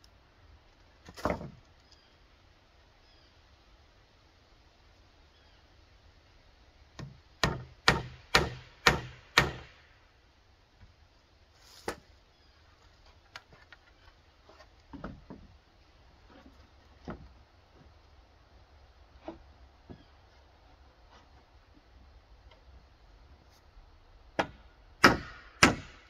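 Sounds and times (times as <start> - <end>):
hammer hitting nail into wood: 7.0 - 9.7, 24.4 - 26.0
wood knocks and taps: 14.5 - 15.5.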